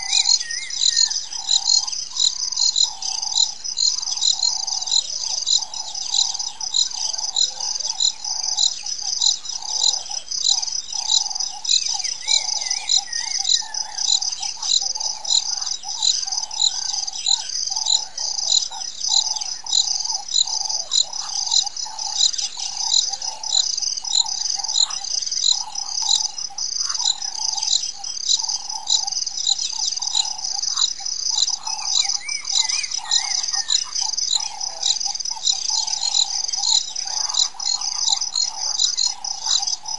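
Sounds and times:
chorus of insect and bird calls: 0.0s - 39.9s
warbling bird call: 0.0s - 39.9s.

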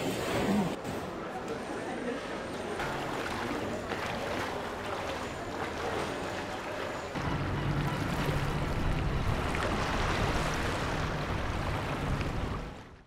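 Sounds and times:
floodwater washing: 2.8s - 13.0s.

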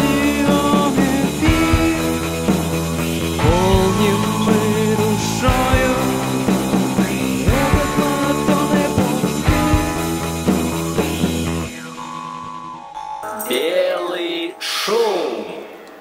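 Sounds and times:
rock song: 0.0s - 12.2s.

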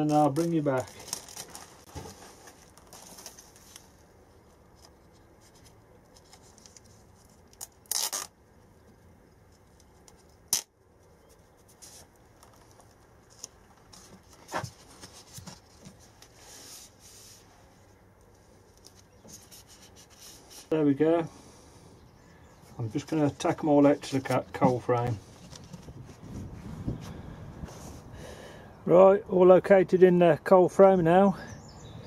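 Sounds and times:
paper label rustling: 0.0s - 20.8s, 22.8s - 26.6s.

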